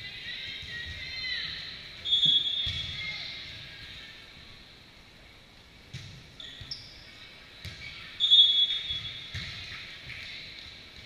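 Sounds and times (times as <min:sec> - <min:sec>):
shoe squeaks: 0:06.4 - 0:07.2.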